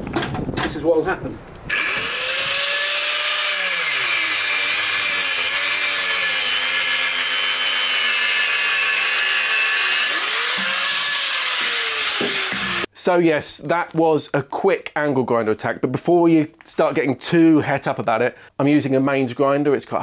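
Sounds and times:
angle grinder cutting metal: 1.7 - 12.9.

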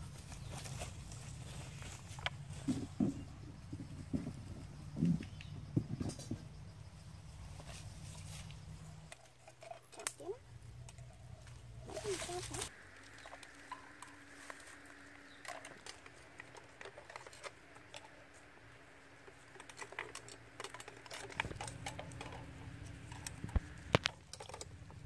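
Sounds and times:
shells clicking on wire rack: 13.2 - 24.8.

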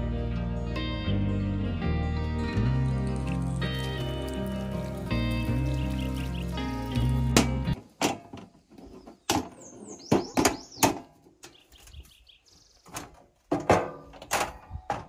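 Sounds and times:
birds chirping: 2.8 - 7.8, 8.6 - 13.2
metal latches clicking and clunking: 12.9 - 15.0.

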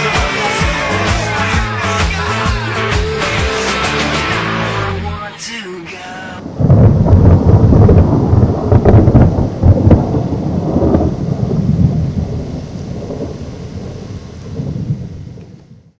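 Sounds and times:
thunder crack and rumble: 6.4 - 15.9.

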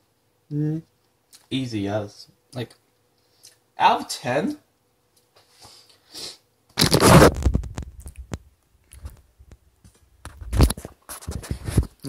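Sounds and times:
camera handling rubbing scrape: 6.8 - 7.5.

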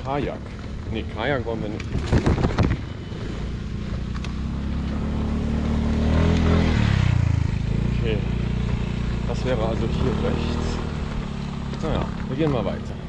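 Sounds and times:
vehicle engine passing by: 3.0 - 13.0.

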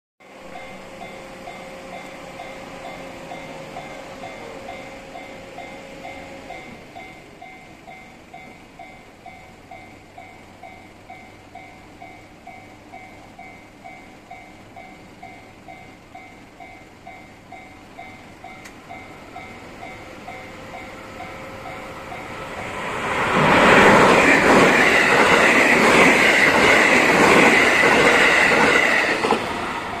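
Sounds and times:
electric train passing: 0.2 - 30.0
level-crossing bell ringing: 0.3 - 23.1
train wheels clattering: 11.0 - 30.0.

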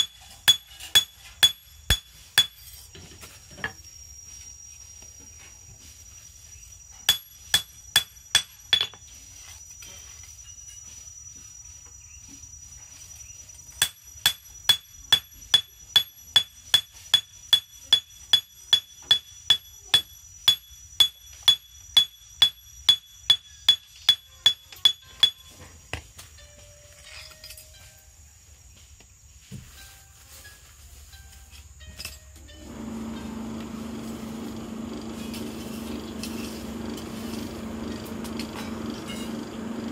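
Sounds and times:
hammer striking blade on anvil: 0.0 - 2.8, 7.1 - 9.0.

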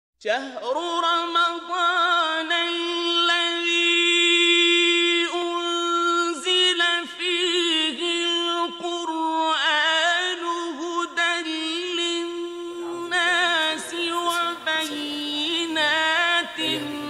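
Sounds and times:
person chanting unaccompanied: 10.1 - 17.0.

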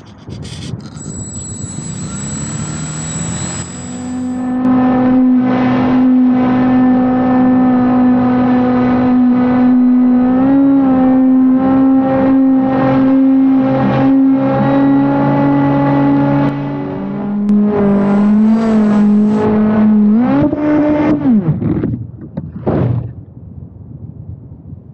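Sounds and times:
electric motor and propeller whine: 0.0 - 6.1, 17.2 - 19.7.

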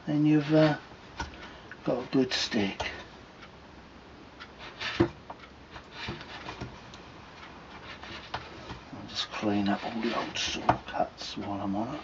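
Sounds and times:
knife scraping wood: 4.6 - 5.2, 7.8 - 10.8.

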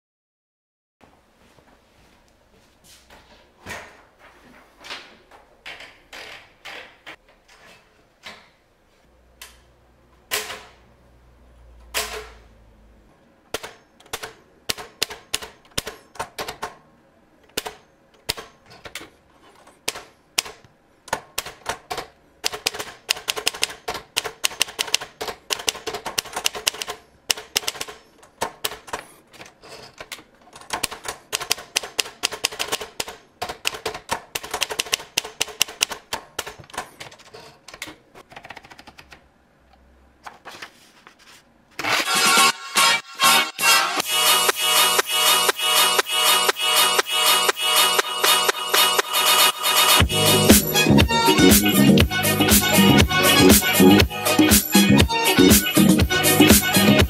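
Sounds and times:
typewriter keys clacking: 21.4 - 39.2.

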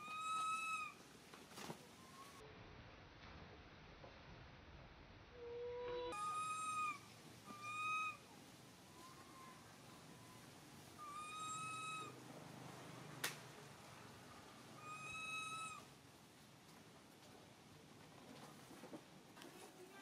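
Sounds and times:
monkey coo calls: 0.0 - 1.0, 5.8 - 8.3, 8.9 - 12.2, 14.8 - 15.9.

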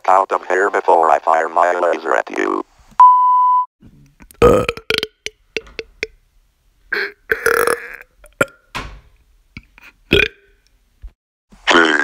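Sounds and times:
high electronic beep: 3.0 - 3.7
person burping: 4.3 - 6.2, 6.9 - 8.7, 9.6 - 10.6.

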